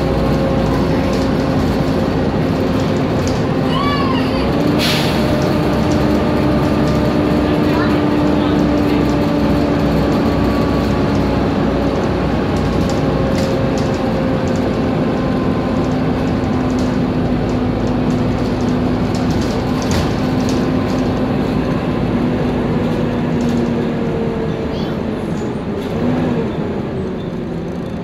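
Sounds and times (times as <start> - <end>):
bus drivetrain whine: 0.0 - 28.0.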